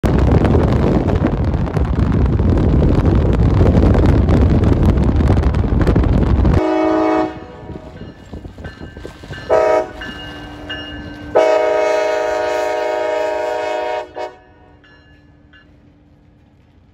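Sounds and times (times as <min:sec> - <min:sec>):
wind buffeting microphone: 0:00.0 - 0:14.3
locomotive air horn blasts: 0:06.6 - 0:08.0, 0:09.4 - 0:14.8.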